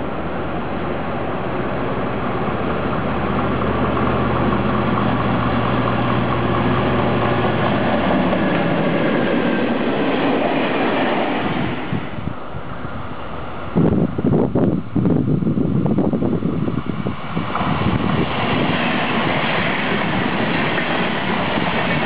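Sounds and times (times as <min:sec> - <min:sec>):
diesel locomotive engine drone: 0:00.0 - 0:22.0
freight wagons rolling: 0:17.5 - 0:22.0.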